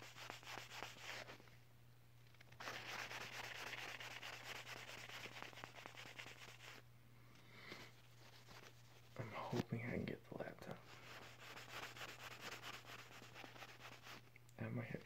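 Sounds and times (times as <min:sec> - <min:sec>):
hands rubbing together: 0:02.6 - 0:06.8.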